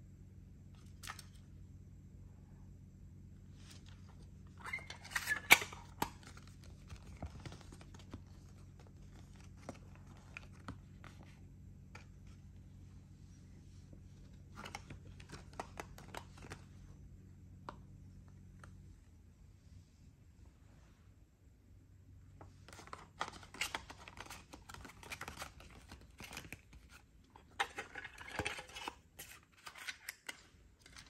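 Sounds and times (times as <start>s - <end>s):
faint low hum: 0.0s - 31.0s
paper rustling: 3.6s - 12.4s.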